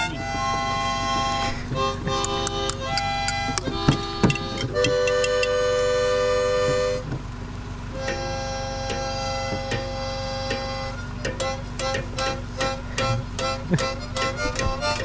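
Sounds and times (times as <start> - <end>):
short knocks: 0.0 - 5.6, 8.0 - 15.0
harmonica chords: 0.0 - 15.0.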